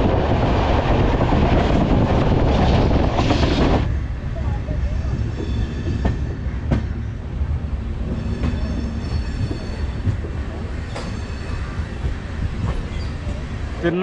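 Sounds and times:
train wheels rumbling on rails: 0.0 - 14.0
high wheel squeal: 8.1 - 10.0, 10.9 - 11.8.

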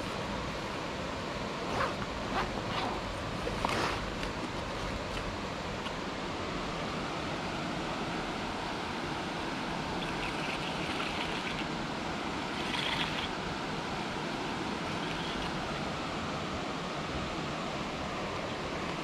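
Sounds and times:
river water rushing: 0.0 - 19.0.

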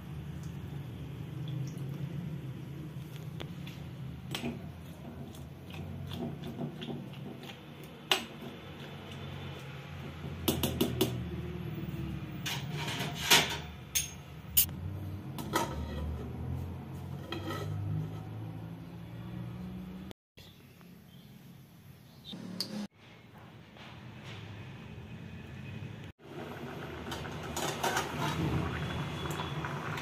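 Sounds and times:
metal spoon clinking in pot: 13.9 - 14.7.

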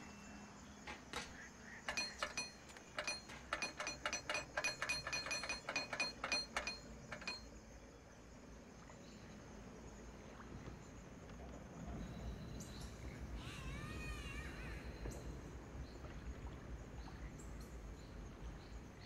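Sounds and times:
chimes tinkling: 1.9 - 7.5.

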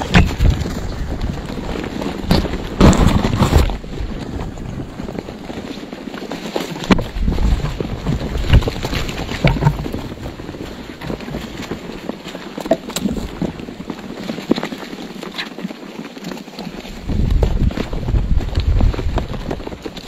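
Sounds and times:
wing flaps and scuffling: 0.0 - 20.0.

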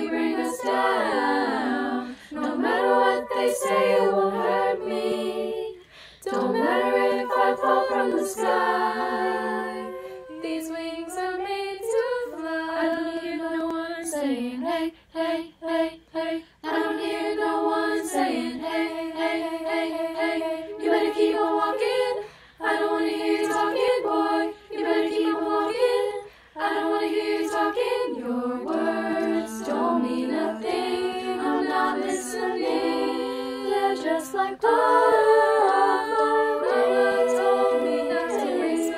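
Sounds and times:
female choir singing a cappella: 0.0 - 38.9.

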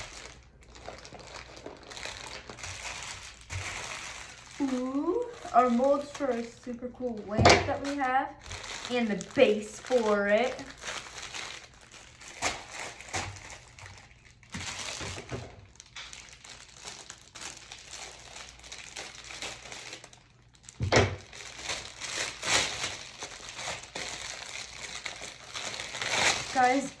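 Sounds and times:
plastic bags crinkling: 0.0 - 27.0.

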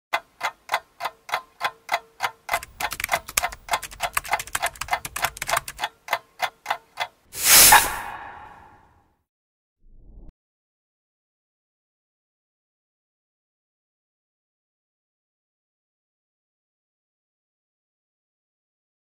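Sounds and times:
clock-like ticking: 0.1 - 7.3.

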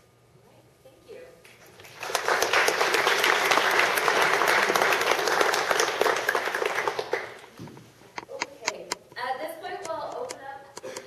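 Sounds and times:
audience applauding: 1.7 - 7.5.

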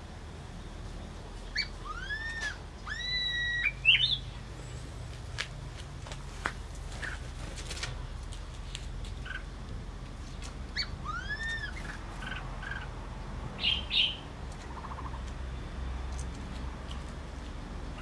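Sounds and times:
birds calling: 1.4 - 5.1, 9.0 - 18.0.

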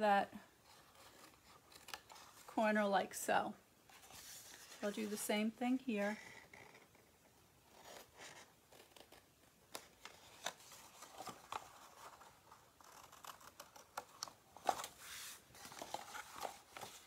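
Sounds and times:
card rustling: 3.9 - 5.4, 7.7 - 17.0.

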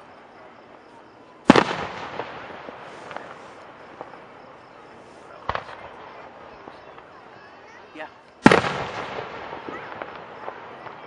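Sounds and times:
faint pops: 5.2 - 6.0.

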